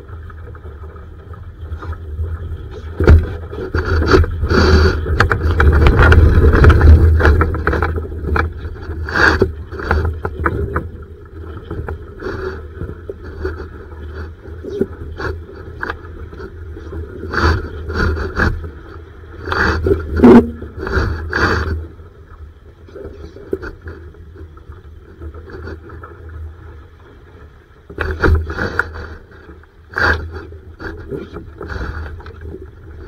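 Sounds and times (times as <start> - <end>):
water slapping against boat hull: 2.6 - 12.0.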